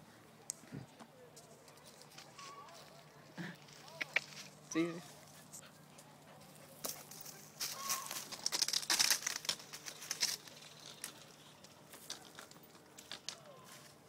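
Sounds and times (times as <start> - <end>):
leaves and twigs rustling: 1.3 - 5.6, 6.4 - 14.0.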